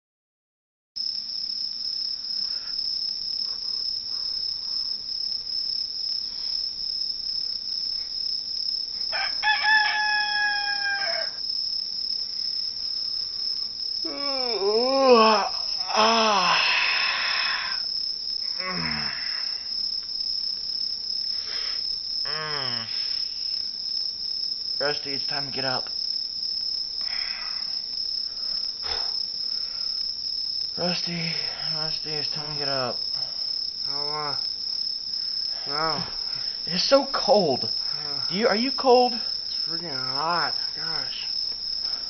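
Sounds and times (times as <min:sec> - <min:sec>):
crickets chirping: 0:01.0 - 0:42.0
rooster crowing: 0:09.1 - 0:11.4.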